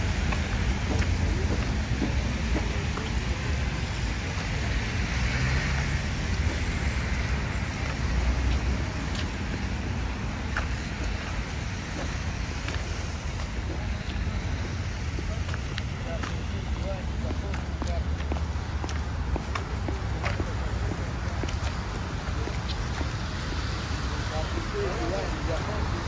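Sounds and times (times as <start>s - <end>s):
footsteps on pavement: 0.0s - 26.0s
road traffic rumble: 0.0s - 26.0s.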